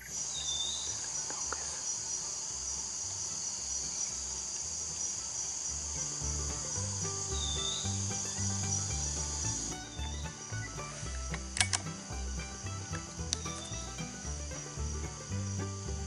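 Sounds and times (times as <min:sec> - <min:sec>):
background music bass line: 0:03.6 - 0:16.0.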